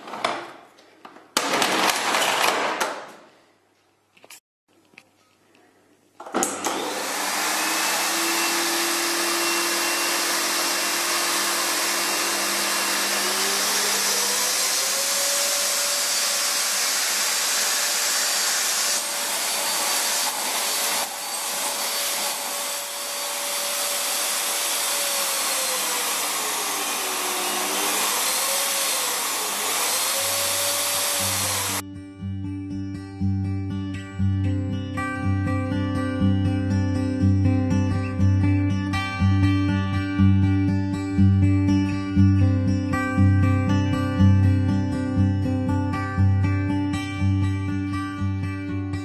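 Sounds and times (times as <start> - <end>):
vacuum cleaner running: 6.2 - 31.8.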